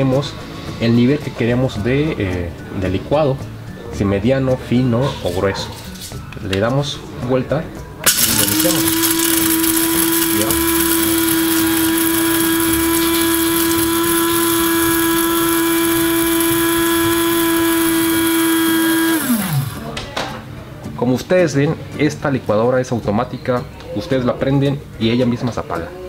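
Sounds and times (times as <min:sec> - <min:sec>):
coffee grinder motor running: 0:08.0 - 0:20.0
grinder motor winding down: 0:08.0 - 0:20.0.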